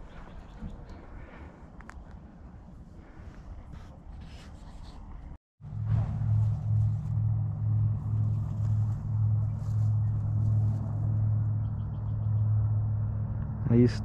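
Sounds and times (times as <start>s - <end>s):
low mechanical hum: 5.6s - 13.7s.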